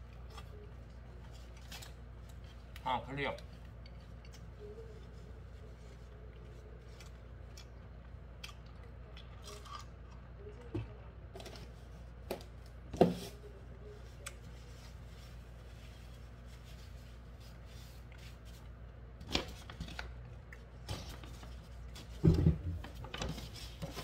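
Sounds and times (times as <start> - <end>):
paper napkin rustling: 13.3 - 18.8.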